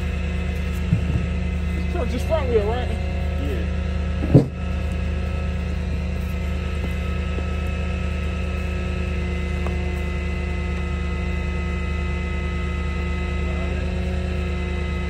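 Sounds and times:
truck engine idling: 0.0 - 15.0
short thump: 0.8 - 1.4, 4.2 - 4.6.

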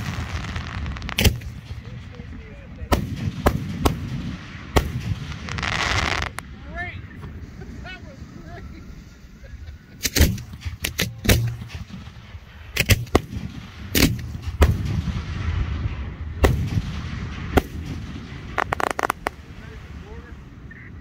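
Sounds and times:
fireworks bangs: 0.0 - 7.8, 10.0 - 19.7
low rumble: 0.0 - 21.0.

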